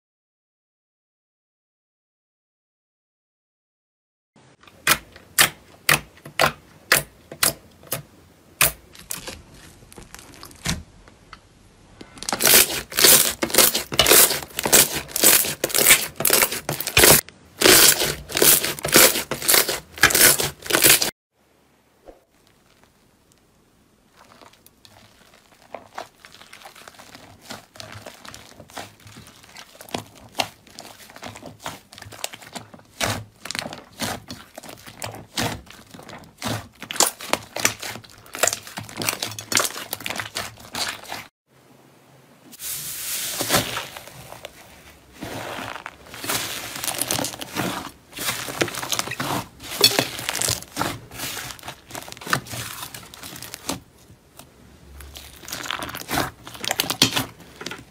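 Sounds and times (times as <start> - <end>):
slime crackling and popping: 8.6 - 10.7, 12.0 - 21.1, 22.0 - 41.3, 45.3 - 53.9, 55.0 - 57.8.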